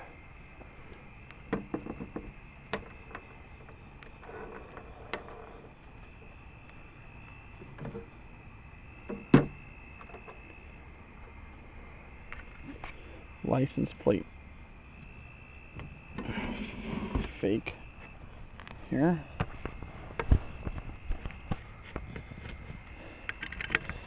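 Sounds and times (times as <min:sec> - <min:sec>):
crickets chirping: 0:00.0 - 0:24.0
clicks and knocks of handling: 0:19.4 - 0:24.0.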